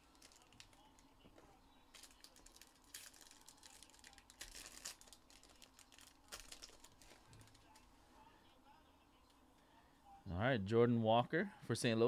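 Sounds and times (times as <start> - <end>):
foil wrappers crinkling and tearing: 0.0 - 1.0, 1.9 - 7.8.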